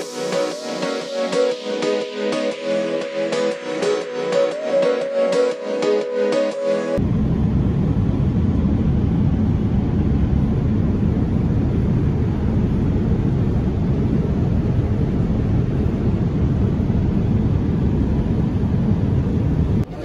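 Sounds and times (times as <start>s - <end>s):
airliner cabin noise: 7.0s - 20.0s.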